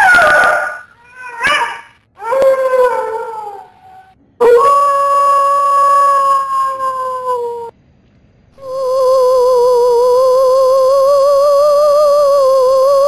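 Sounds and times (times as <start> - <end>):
howling: 0.0 - 7.7.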